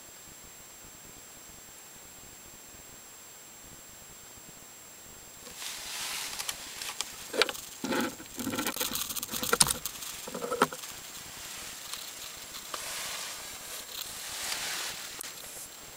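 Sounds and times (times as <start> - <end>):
light rustling: 5.4 - 15.9
metal clicks and rattles: 6.4 - 11.1.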